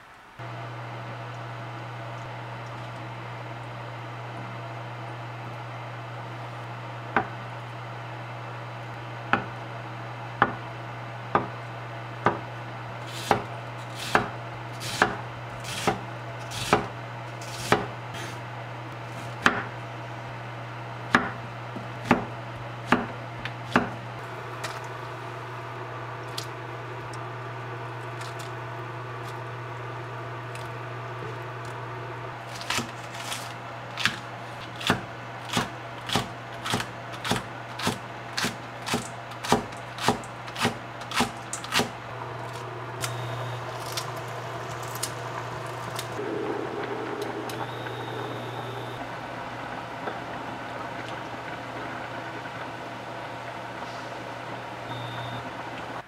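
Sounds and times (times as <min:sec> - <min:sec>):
low steady hum: 0:00.0 - 0:56.0
knife chopping on wooden board: 0:13.2 - 0:16.9, 0:17.5 - 0:17.9, 0:22.0 - 0:22.3, 0:22.9 - 0:23.1, 0:23.7 - 0:24.0, 0:34.8 - 0:41.9.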